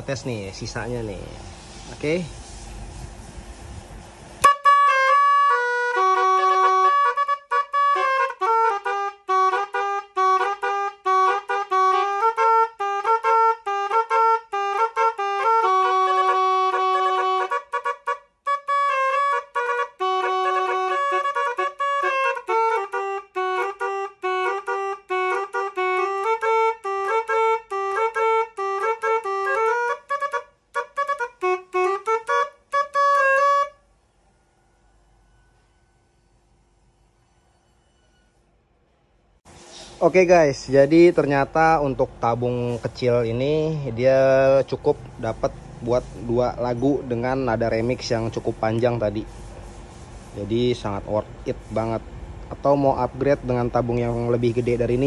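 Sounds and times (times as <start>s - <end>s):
musical air horn melody: 4.3s - 39.0s, 52.6s - 55.0s.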